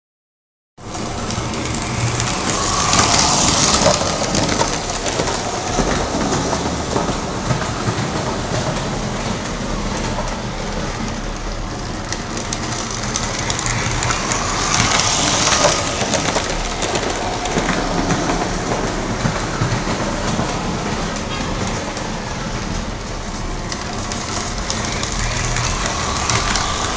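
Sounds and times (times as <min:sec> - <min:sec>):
wheels clattering over rails: 0:00.8 - 0:26.9
model train motor whirring: 0:01.0 - 0:05.5, 0:12.4 - 0:17.2, 0:24.3 - 0:26.9.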